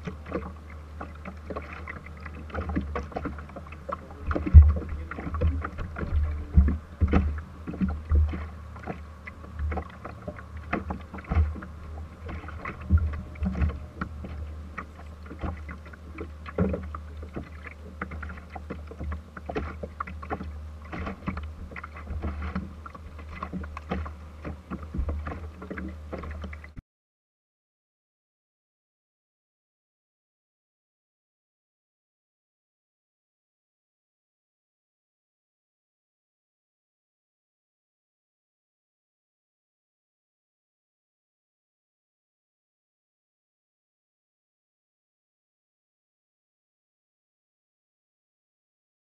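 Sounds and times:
boat low rumble: 0.0 - 26.8.

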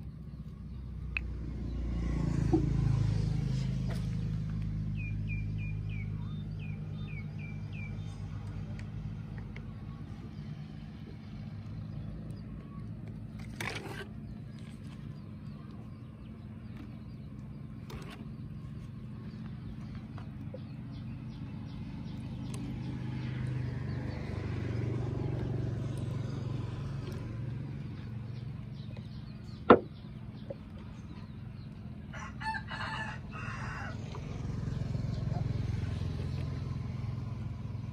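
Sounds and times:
low engine hum: 0.0 - 37.9
rooster crowing: 32.1 - 34.2.

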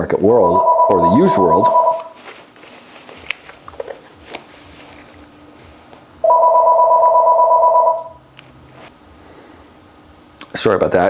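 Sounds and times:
electronic telephone ringing: 0.4 - 2.2, 6.2 - 8.2.

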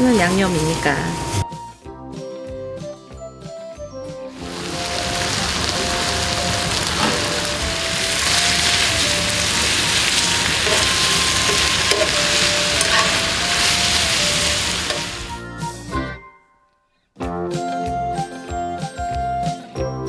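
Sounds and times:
meat and vegetables sizzling: 0.0 - 1.4, 4.3 - 15.4
metal tongs clicking: 12.8 - 13.2.

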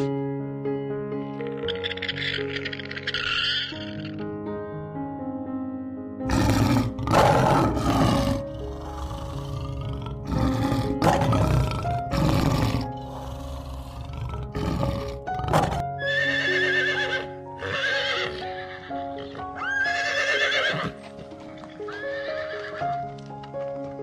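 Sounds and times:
background music: 0.0 - 24.0
horse whinnying: 1.6 - 4.2, 6.3 - 22.8
lion roaring: 6.3 - 15.8.

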